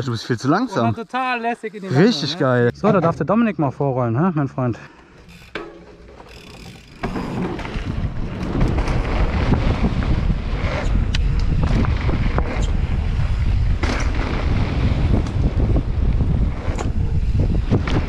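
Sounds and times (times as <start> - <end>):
bike clicks and knocks: 5.0 - 14.2, 16.6 - 17.1
wind rushing over microphone: 7.1 - 18.0.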